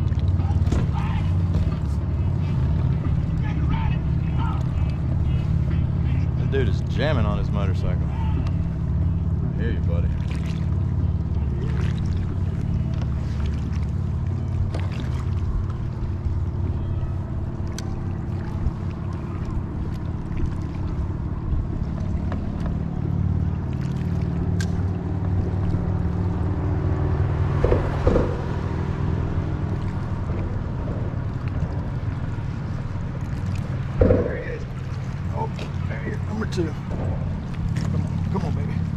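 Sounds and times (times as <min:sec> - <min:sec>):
low engine drone: 0:00.0 - 0:38.9.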